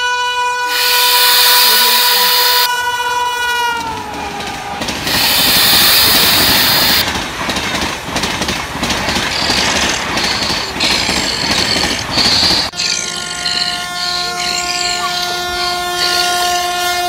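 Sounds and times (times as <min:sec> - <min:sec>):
steam locomotive chugging: 0:00.6 - 0:17.0
loud steam hiss: 0:00.7 - 0:02.7, 0:05.0 - 0:07.0.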